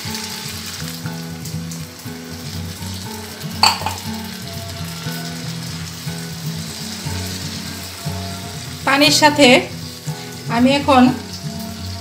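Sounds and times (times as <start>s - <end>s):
curry sizzling in a frying pan: 0.0s - 12.0s
water pouring: 0.0s - 12.0s
spatula knocking against pan: 3.6s - 4.2s.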